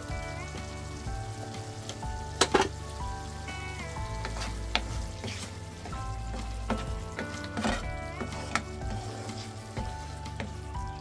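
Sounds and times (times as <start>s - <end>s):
background music: 0.0s - 11.0s
sauce sizzling in a frying pan: 0.0s - 11.0s
wooden spoon scraping a pan: 4.0s - 10.8s.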